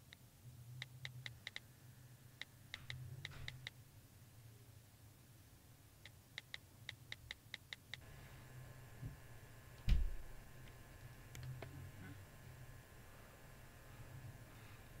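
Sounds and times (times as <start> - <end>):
faint steady tone: 0.0 - 15.0.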